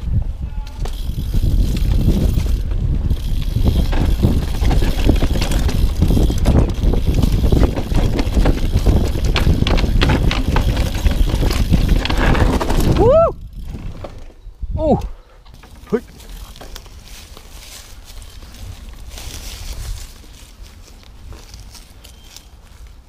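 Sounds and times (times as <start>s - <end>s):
wind rumble on microphone: 0.0s - 15.1s, 17.0s - 21.8s
bike chain and frame clattering: 0.6s - 14.3s
tyres rolling over dirt: 0.8s - 14.4s.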